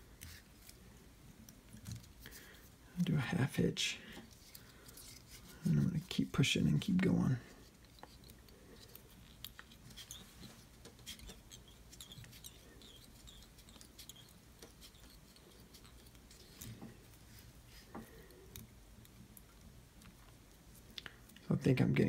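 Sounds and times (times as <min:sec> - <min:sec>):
thread being wrapped: 0:00.0 - 0:02.8, 0:04.2 - 0:21.4.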